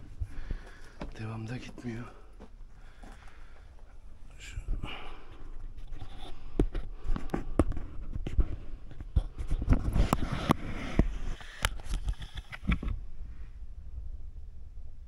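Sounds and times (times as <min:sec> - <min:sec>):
footsteps over debris: 0:00.0 - 0:06.0.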